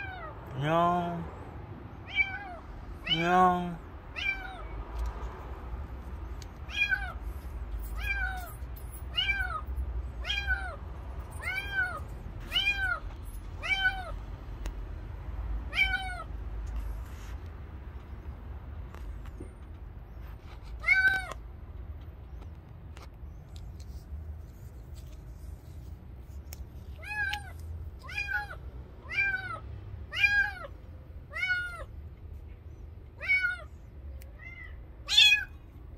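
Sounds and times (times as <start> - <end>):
kitten meowing: 2.0 - 3.3, 4.1 - 4.7, 6.7 - 7.2, 15.7 - 16.3, 27.0 - 30.7, 33.2 - 35.6.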